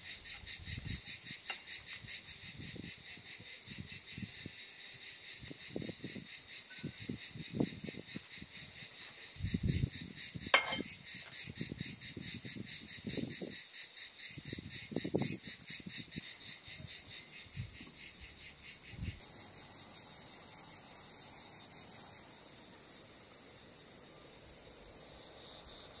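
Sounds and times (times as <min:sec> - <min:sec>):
insects chirping: 0:00.0 - 0:26.0.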